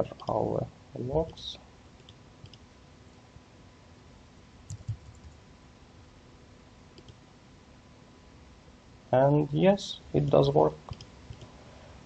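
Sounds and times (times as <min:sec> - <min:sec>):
faint steady hum: 0:00.0 - 0:12.0
keyboard and mouse clicks: 0:02.0 - 0:02.6, 0:04.7 - 0:05.4, 0:07.0 - 0:07.2, 0:10.9 - 0:11.5.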